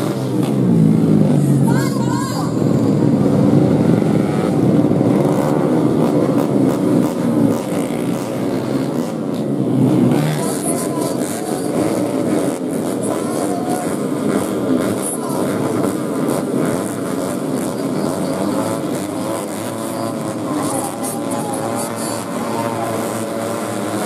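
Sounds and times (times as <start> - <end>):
motorcycle engines revving: 0.0 - 24.0
voice: 1.4 - 3.3, 10.2 - 12.3, 12.9 - 14.2, 14.9 - 15.9, 17.2 - 24.0.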